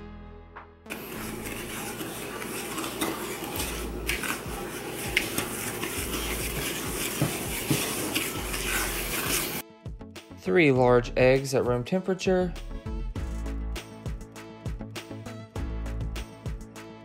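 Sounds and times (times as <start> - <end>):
spoon scraping in glass bowl: 0.9 - 9.6.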